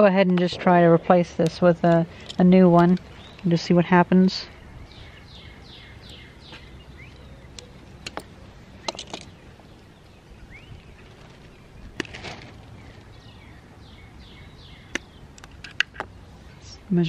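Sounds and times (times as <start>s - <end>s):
birds chirping: 0.0s - 17.0s
pliers and metal parts clicking: 7.6s - 9.4s.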